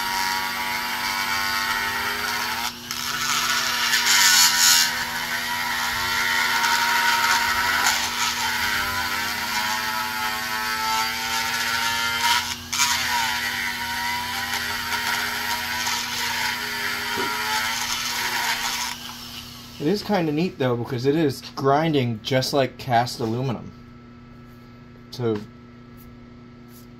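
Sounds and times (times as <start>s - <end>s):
rotary grinder motor whine: 0.0s - 20.0s.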